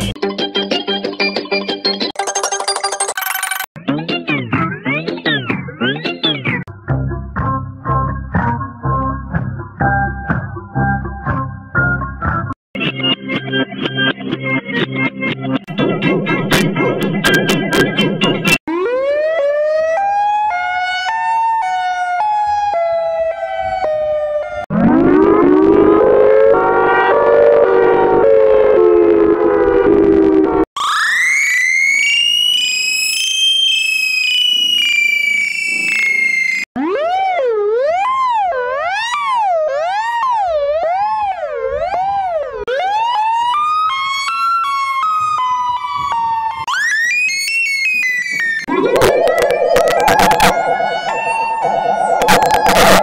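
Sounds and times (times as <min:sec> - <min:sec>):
lower rougher siren winding up: 0:18.4 - 0:53.0
tornado siren wailing: 0:18.7 - 0:53.0.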